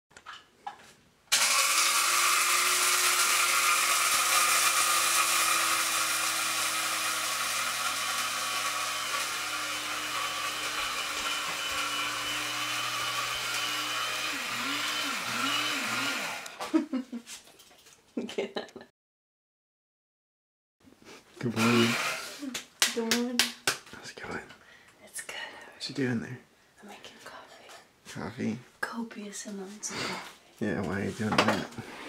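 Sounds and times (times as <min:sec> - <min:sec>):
kitchen appliance motor whirring: 0:01.3 - 0:16.6, 0:21.4 - 0:22.4.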